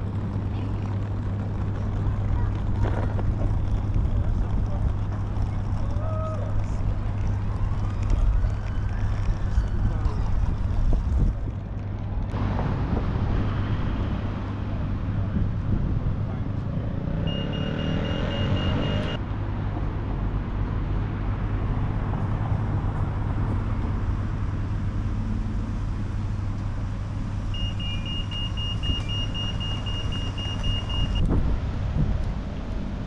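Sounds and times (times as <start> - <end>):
road traffic: 0.0 - 33.0
high electronic beeping: 17.2 - 19.2.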